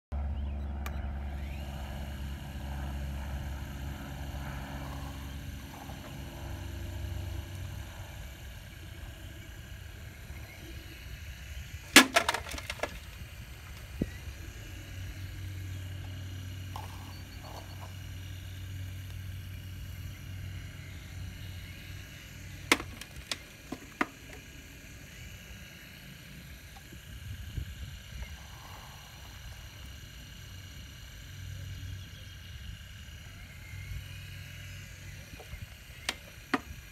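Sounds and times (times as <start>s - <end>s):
model excavator drive humming: 0.2s - 36.9s.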